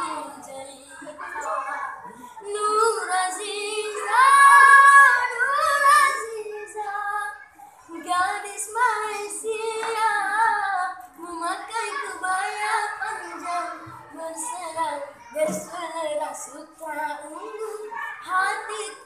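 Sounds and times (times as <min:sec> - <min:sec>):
breath: 0:02.0 - 0:02.4, 0:07.6 - 0:07.9.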